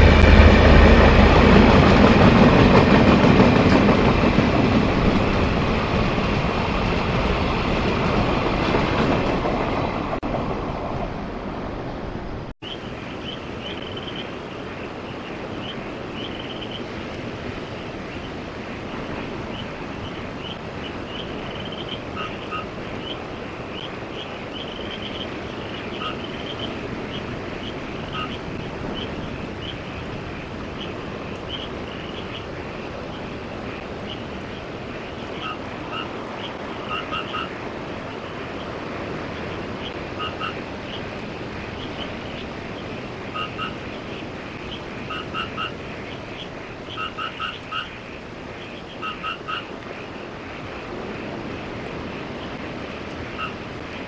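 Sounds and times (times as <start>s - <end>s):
frogs croaking: 12.6s - 54.0s.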